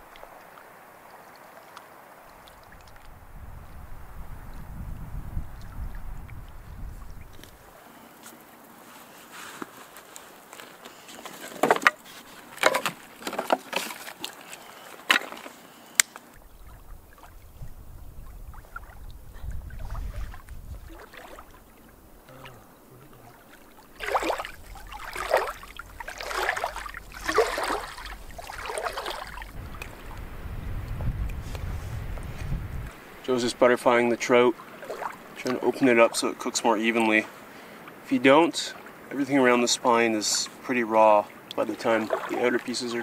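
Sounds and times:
water splashing: 0:00.0 - 0:08.7, 0:11.3 - 0:43.0
low rumble: 0:16.4 - 0:33.3.

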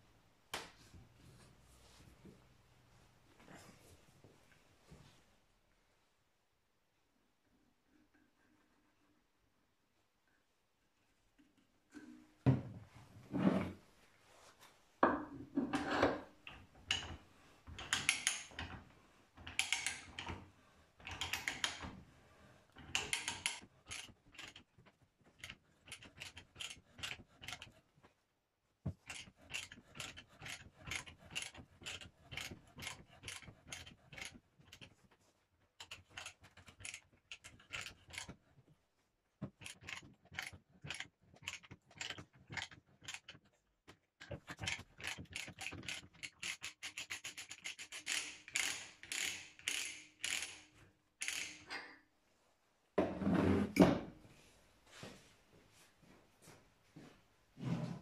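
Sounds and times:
ratchet pawl clicking: 0:44.7 - 0:51.7.

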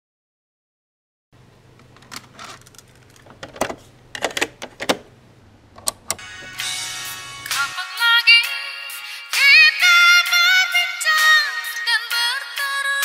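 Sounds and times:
steady low hum: 0:01.4 - 0:07.7
cassette keys clicking and clunking: 0:01.8 - 0:05.1, 0:05.7 - 0:06.6
music playing: 0:06.2 - 0:13.0.

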